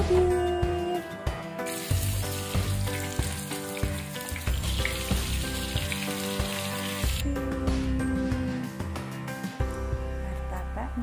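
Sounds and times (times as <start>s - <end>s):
background music: 0.0s - 11.0s
oil sizzling in a pan: 1.7s - 7.2s.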